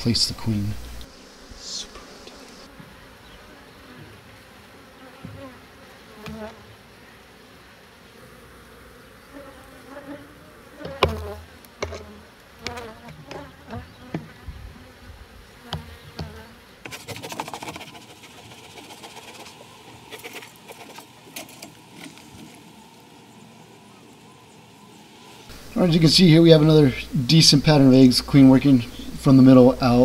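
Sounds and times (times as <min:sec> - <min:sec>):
honeybees buzzing: 0:00.0 - 0:30.0
hive tool knocking wooden frames: 0:05.2 - 0:05.5, 0:06.2 - 0:06.6, 0:10.8 - 0:14.5, 0:15.7 - 0:18.2.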